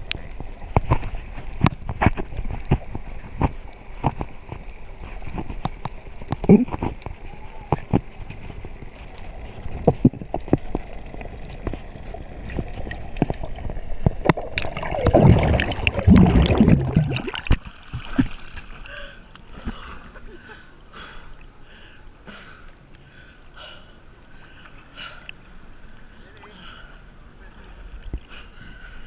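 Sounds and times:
bubbles and splashing: 0.0 - 18.9.

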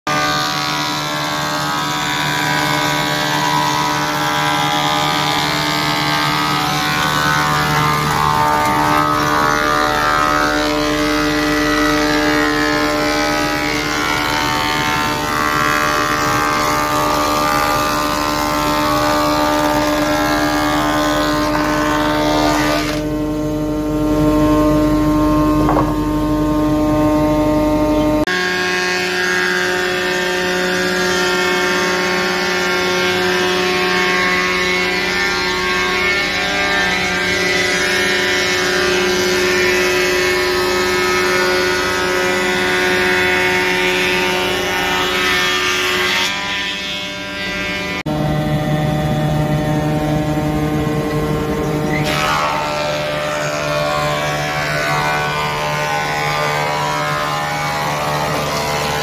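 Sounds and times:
planer motor whine: 0.1 - 59.0.

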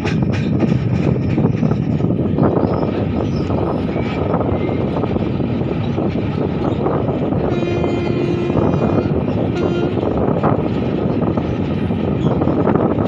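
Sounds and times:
train wheels rumbling on rails: 0.0 - 13.0
train horn: 7.4 - 10.3.

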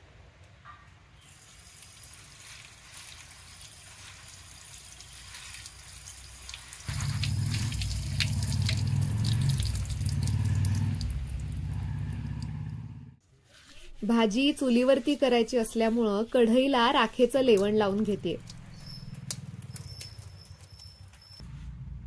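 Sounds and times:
faint splashing and dripping: 1.2 - 12.5, 17.4 - 20.9
running water rushing: 1.4 - 11.7.

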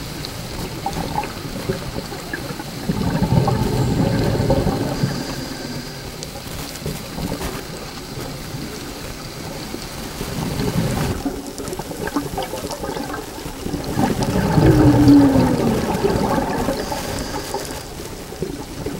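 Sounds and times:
bubbles gurgling: 0.0 - 18.9
low underwater rumble: 0.1 - 8.7, 10.1 - 18.9
scuba regulator breathing: 2.8 - 6.6, 14.0 - 18.4.

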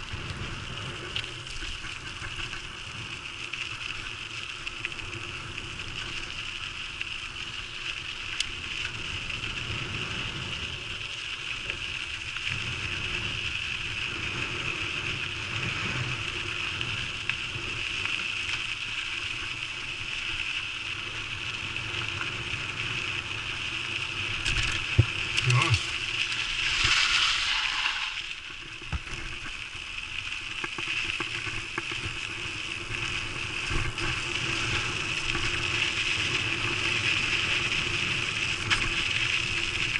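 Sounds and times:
mountain bike rolling on dirt: 0.0 - 39.9.

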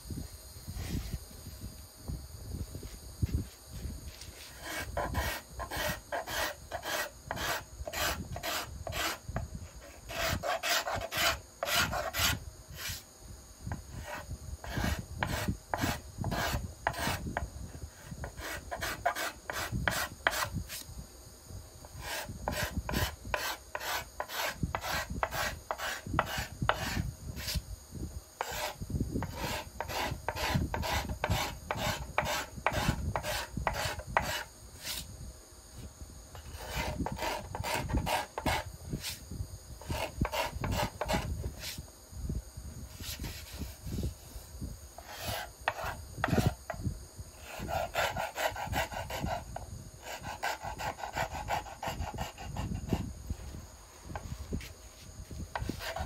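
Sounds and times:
scraper scraping wood: 4.1 - 9.2, 9.8 - 13.0, 14.0 - 17.3, 18.2 - 20.8, 22.0 - 27.6, 28.4 - 35.1, 36.4 - 39.2, 39.8 - 41.8, 45.0 - 46.6, 47.4 - 53.1, 55.5 - 56.0.

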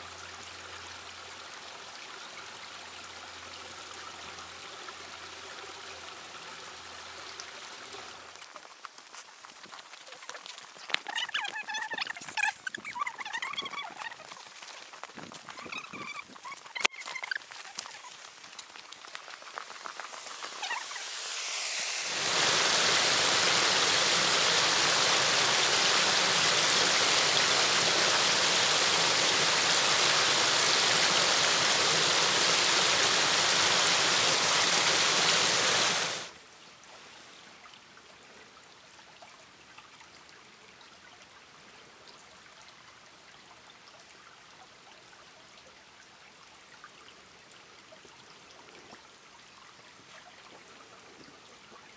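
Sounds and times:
creek trickling: 0.0 - 51.9
waterfall rushing: 20.0 - 36.3.

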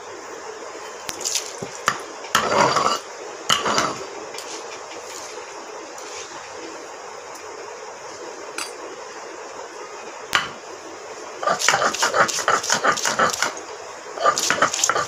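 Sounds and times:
stone roller grating on stone: 2.4 - 4.1, 11.4 - 13.6, 14.2 - 15.0.

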